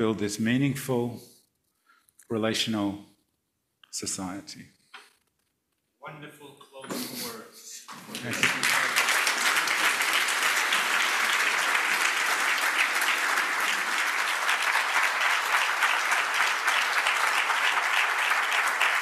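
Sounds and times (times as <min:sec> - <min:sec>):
audience applauding: 0:07.9 - 0:19.0.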